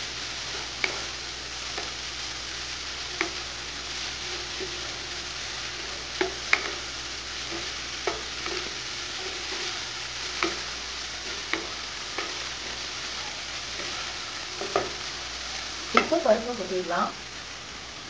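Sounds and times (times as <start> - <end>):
vegetables sizzling in a pan: 0.0 - 18.0
wooden spatula knocking pan: 7.5 - 9.7, 10.3 - 12.4, 14.6 - 15.0.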